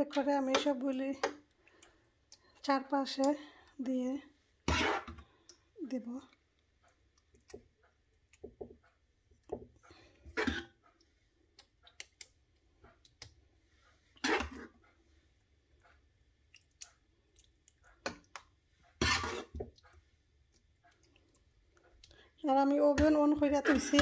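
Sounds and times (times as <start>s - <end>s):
ladle scraping tray: 4.7s - 5.2s, 14.2s - 14.8s, 19.0s - 19.6s, 22.9s - 24.0s.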